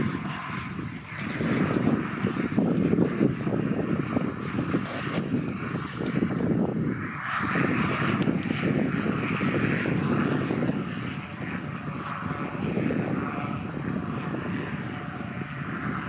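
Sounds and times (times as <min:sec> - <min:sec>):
propeller aircraft engine: 0:00.0 - 0:16.0.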